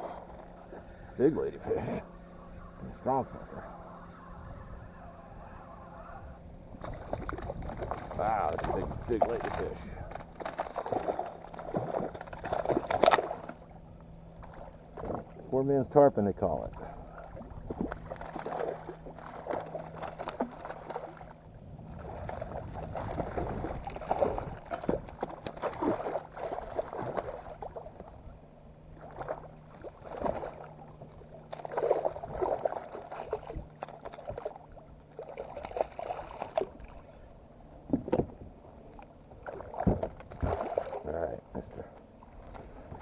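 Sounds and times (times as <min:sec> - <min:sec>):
water slapping kayak hull: 0:00.0 - 0:43.0
fish splashing in water: 0:06.8 - 0:13.6, 0:17.0 - 0:28.2, 0:28.9 - 0:37.0, 0:39.4 - 0:41.0.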